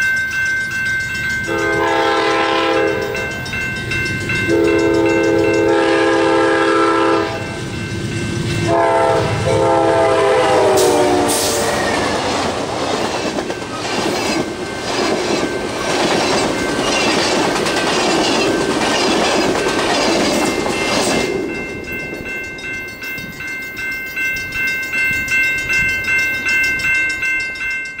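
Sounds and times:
crossing bells ringing: 0.0s - 28.0s
locomotive horn blasts: 1.5s - 3.3s, 4.5s - 7.6s, 8.6s - 12.1s
train wheels clattering over rail joints: 11.7s - 22.4s.

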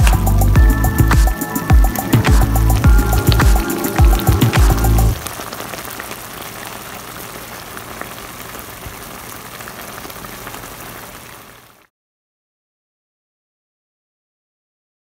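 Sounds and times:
stew bubbling at a simmer: 1.9s - 11.8s.

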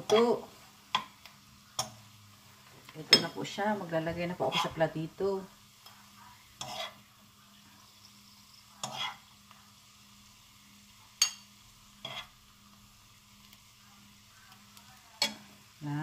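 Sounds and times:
food scraping in frying pan: 0.0s - 9.6s, 11.1s - 13.7s.

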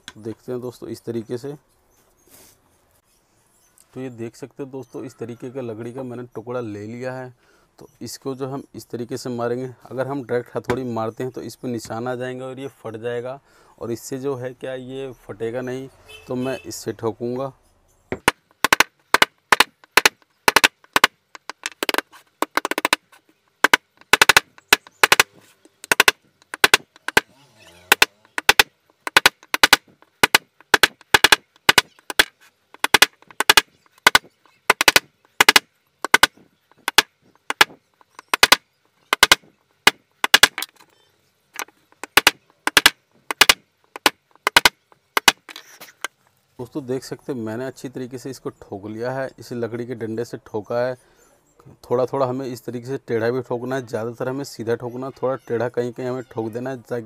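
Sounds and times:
hammer striking wooden dowel: 18.1s - 23.0s, 23.6s - 27.3s, 27.9s - 40.7s, 41.6s - 45.6s.

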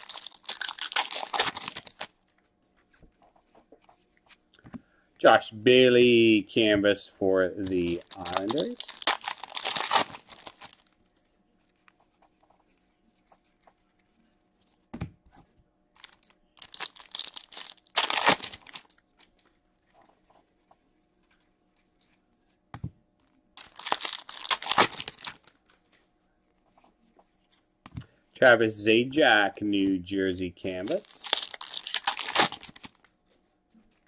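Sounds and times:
wrapper tearing and crinkling: 0.0s - 2.3s, 7.6s - 11.0s, 16.0s - 19.0s, 23.6s - 25.8s, 30.7s - 33.1s.

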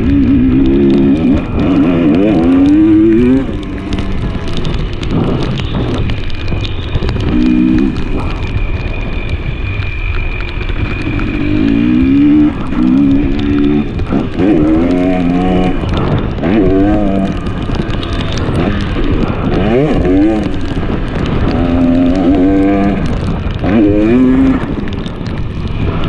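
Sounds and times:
dirt bike engine revving: 0.0s - 6.0s, 11.0s - 17.6s, 18.4s - 24.9s.

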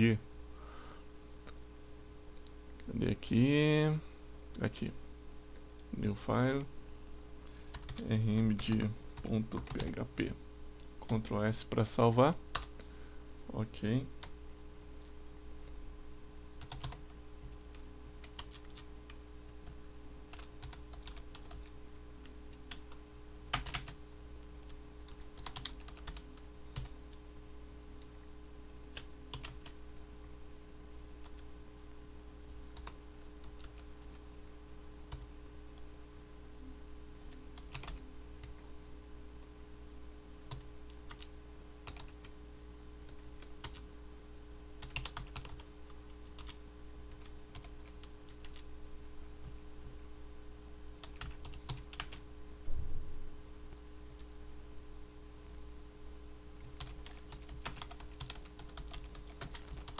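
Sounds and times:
low electrical hum: 0.0s - 59.9s
typing on keyboard: 7.7s - 10.0s, 16.6s - 17.6s, 18.2s - 18.8s, 19.6s - 21.7s, 22.6s - 24.0s, 24.6s - 26.9s, 37.6s - 38.6s, 40.5s - 42.2s, 43.1s - 43.8s, 44.8s - 45.7s, 51.0s - 52.2s, 56.6s - 59.9s.

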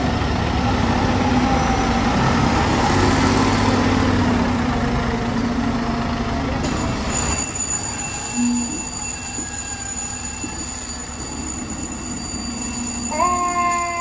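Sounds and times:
fire engine diesel idling: 4.2s - 14.0s
steady high-pitched tones: 6.6s - 14.0s
siren with sinking pitch: 7.0s - 14.0s.

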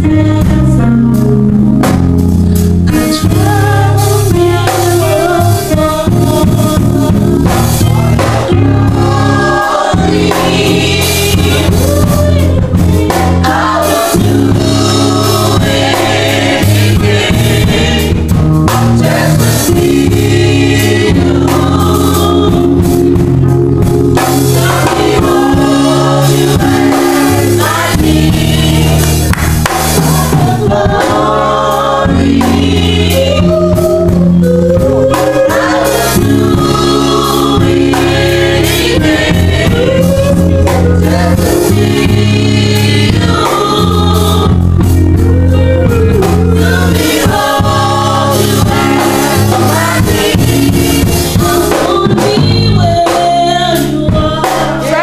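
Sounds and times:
electric keyboard chords: 0.0s - 55.0s
group singing gospel: 0.0s - 55.0s.

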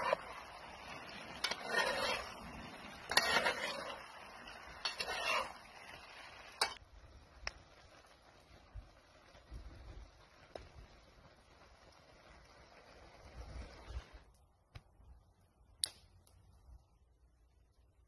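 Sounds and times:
metal spatulas scraping skillet: 0.0s - 6.8s.

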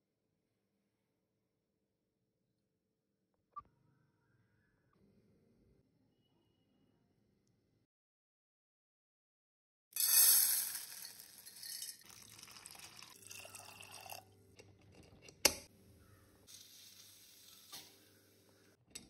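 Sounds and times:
water pouring and splashing: 12.0s - 14.2s.

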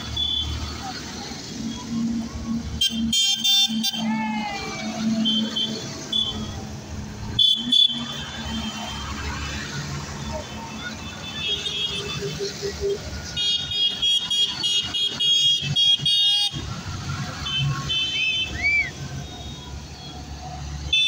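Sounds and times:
tractor engines rumbling: 0.0s - 21.0s
whistle-like tones: 18.4s - 19.7s.

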